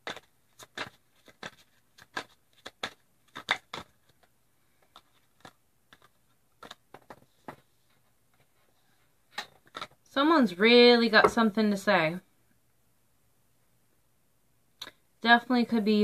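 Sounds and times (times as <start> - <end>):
cards snapping and tapping: 0.0 - 7.6.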